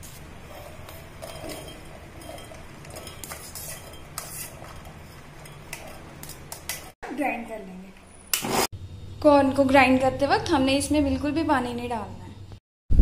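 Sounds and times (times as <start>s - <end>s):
metal utensils clinking and scraping: 0.4s - 7.0s.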